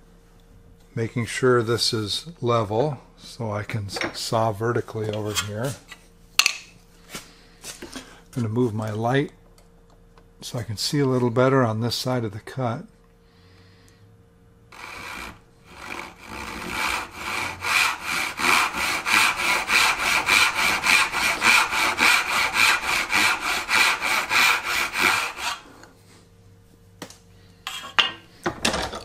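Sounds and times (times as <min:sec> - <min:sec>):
hand saw cutting wood: 0:14.7 - 0:25.9.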